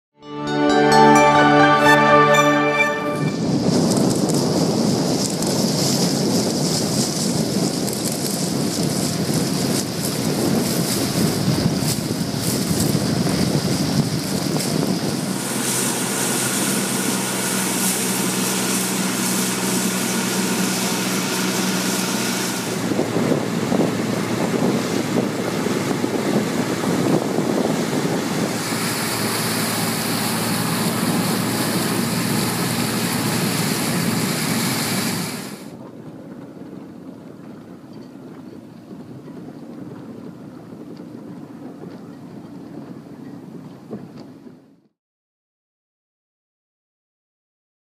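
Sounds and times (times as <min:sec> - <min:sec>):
wind buffeting microphone: 0:03.4 - 0:15.5, 0:22.7 - 0:33.0
water rushing past boat: 0:03.4 - 0:44.6.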